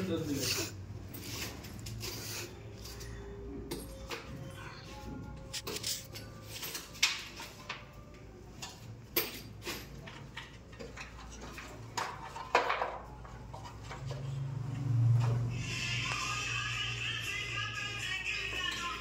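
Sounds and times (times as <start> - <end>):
hand tools clicking and knocking: 8.6 - 13.9.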